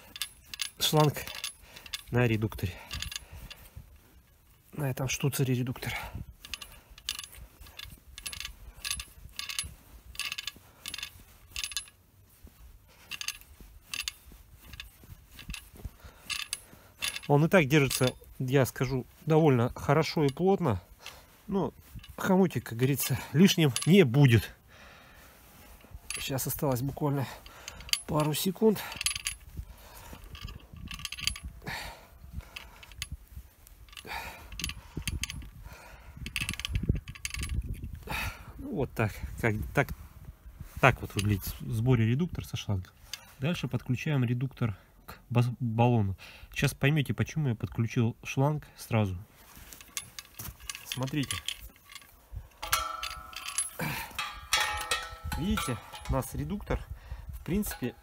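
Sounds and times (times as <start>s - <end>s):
small metallic clinks and scrapes: 0.0s - 45.5s, 47.7s - 58.0s
light metallic clicks of hose clamp: 49.7s - 58.0s.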